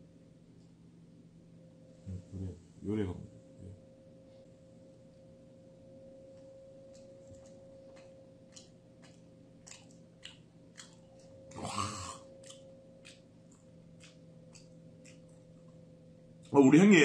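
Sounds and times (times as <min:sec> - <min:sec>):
steady hum: 0:00.0 - 0:17.0
man chewing with mouth clicks: 0:06.4 - 0:16.6
throat sound: 0:11.5 - 0:12.3.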